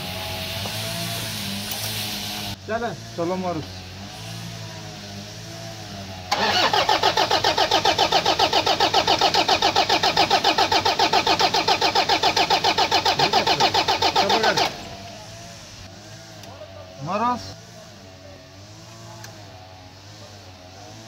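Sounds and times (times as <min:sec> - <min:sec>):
diesel engine cranking on starter: 0:06.2 - 0:15.2.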